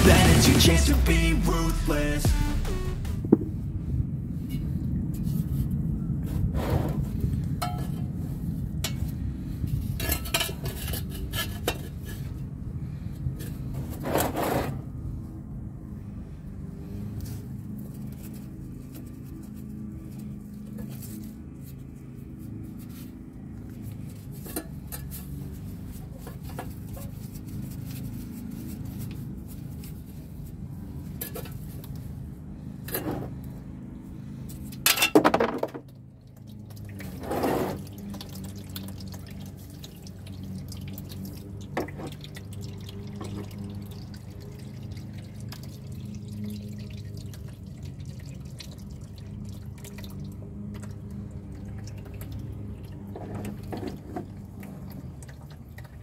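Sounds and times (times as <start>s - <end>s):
fluid dripping into a drain pan: 35.8s - 37.2s, 37.8s - 56.0s.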